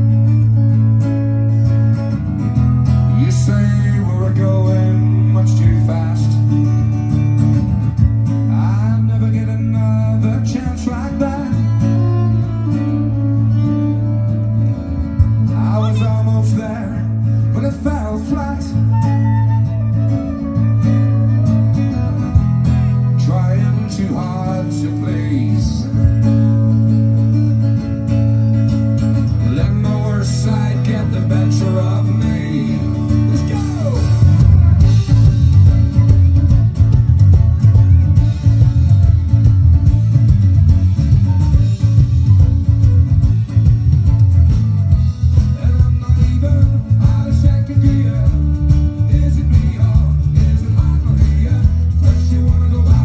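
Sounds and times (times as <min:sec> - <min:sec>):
bass guitar: 0:00.0 - 0:53.0
drums: 0:00.0 - 0:53.0
strummed acoustic guitar: 0:00.0 - 0:53.0
fiddle: 0:10.5 - 0:17.3, 0:33.5 - 0:45.8.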